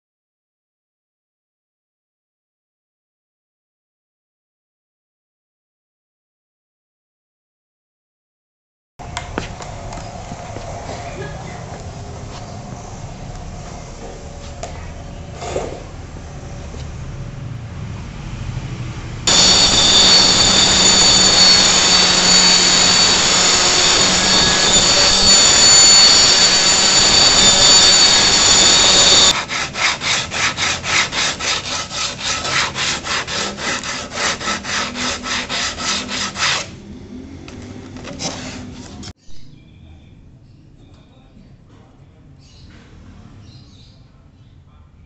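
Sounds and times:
sandpaper rubbing wood: 19.3 - 36.7
circular saw cutting plywood: 19.3 - 36.8.

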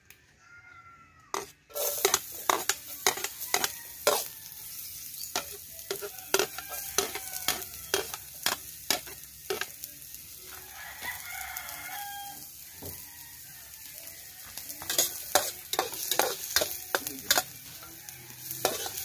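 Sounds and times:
onions sizzling in a wok: 1.2 - 19.0.

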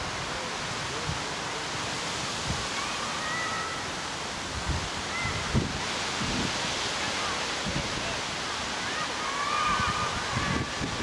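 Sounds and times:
distant shouts: 2.7 - 4.1, 8.7 - 11.0.

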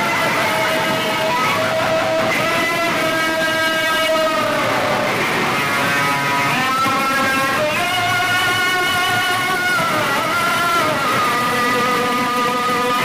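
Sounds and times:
crowd noise: 0.0 - 13.0
loud dj music over loudspeakers: 0.0 - 13.0.

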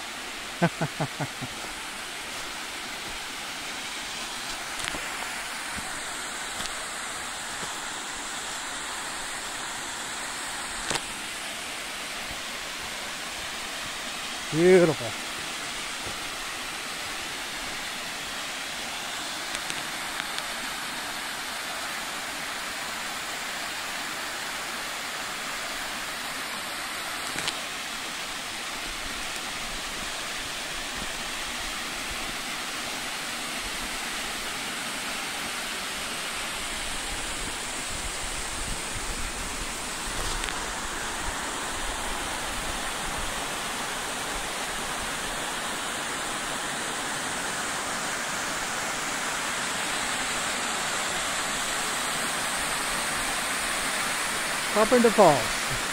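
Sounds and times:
waterfall and stream rushing: 0.0 - 55.9.

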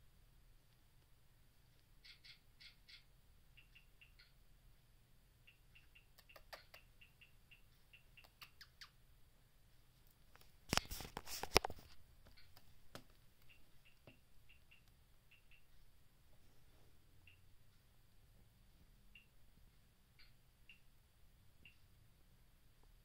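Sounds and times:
guinea pigs squeaking: 2.0 - 4.4, 5.4 - 9.0, 13.4 - 15.8
rustling and scuffling: 9.8 - 13.3.

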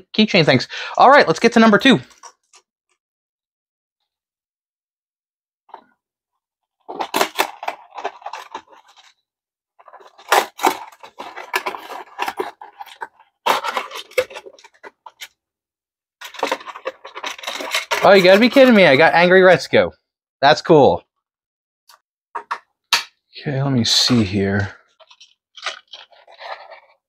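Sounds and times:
plastic clamshell crinkling: 6.9 - 9.2, 9.8 - 15.4, 16.2 - 19.0, 24.9 - 27.0
cardboard box tearing: 9.9 - 14.9.

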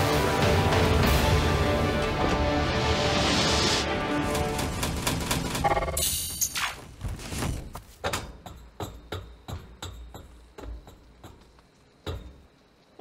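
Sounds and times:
sharp knocks and clatters: 7.4 - 12.6.

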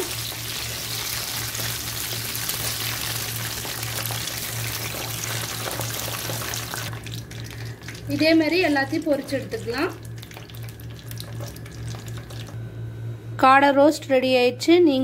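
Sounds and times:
quail deep-frying in hot oil: 0.0 - 12.6.

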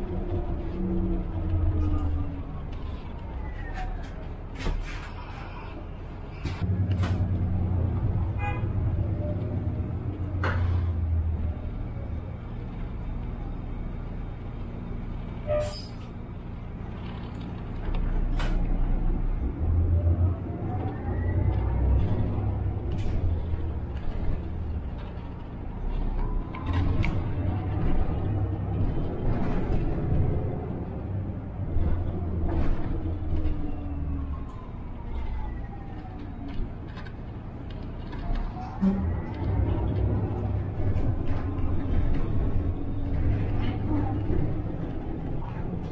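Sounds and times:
bus engine rumble: 0.0 - 45.9.

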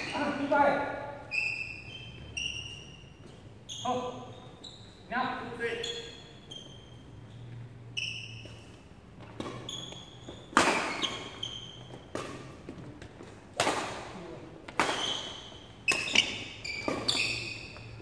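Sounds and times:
sneaker squeaks on court floor: 0.0 - 0.5, 1.2 - 12.6, 14.8 - 18.0
racket striking shuttlecock: 9.4 - 14.1, 14.7 - 17.9.

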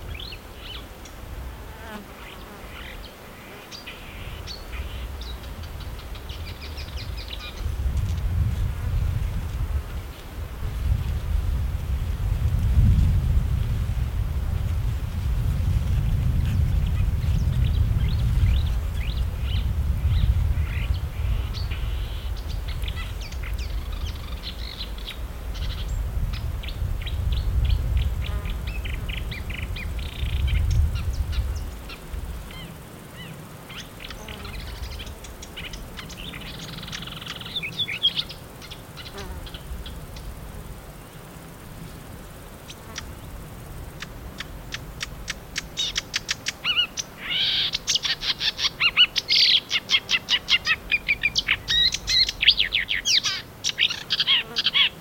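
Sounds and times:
warbler singing chattering song: 44.0 - 55.0.

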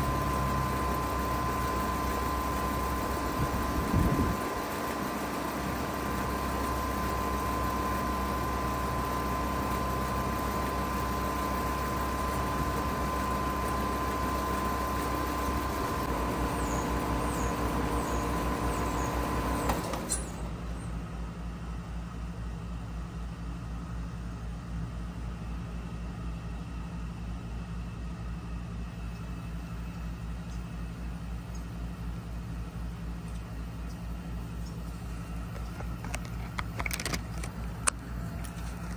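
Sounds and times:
heat pump hum and whine: 0.0 - 38.9
low pulsing hum: 0.0 - 38.9
heat pump shutdown click: 1.5 - 20.6.

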